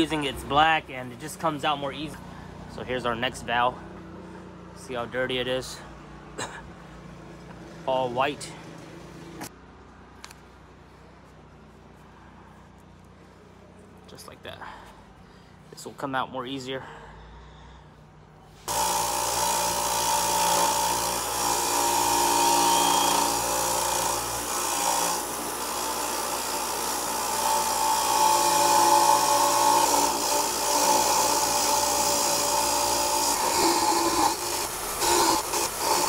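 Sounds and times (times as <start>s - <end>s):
wire wheel grinder scraping metal: 18.6s - 36.0s.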